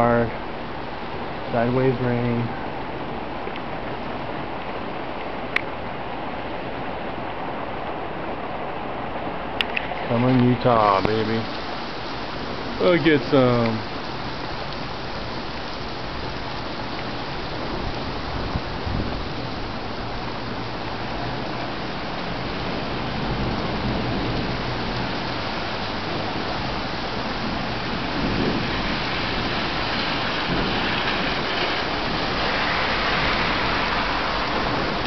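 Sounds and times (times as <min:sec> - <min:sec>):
heavy rain on pavement: 0:00.0 - 0:35.0.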